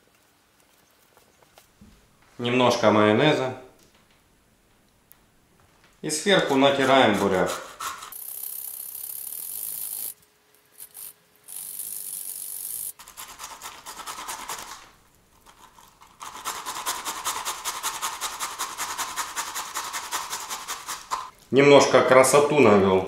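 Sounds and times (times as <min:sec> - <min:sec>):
grating on metal grater: 0:06.4 - 0:08.2, 0:11.6 - 0:14.8, 0:15.4 - 0:21.3.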